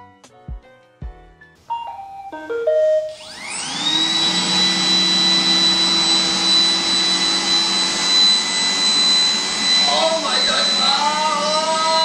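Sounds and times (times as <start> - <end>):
robot vacuum motor whine: 3.0 - 12.0.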